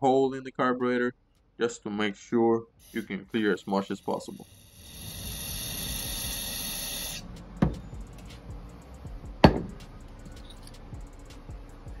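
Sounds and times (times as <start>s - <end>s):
aerosol spray hissing: 2.8s - 7.2s
knocks: 7.6s - 7.8s, 9.4s - 9.8s.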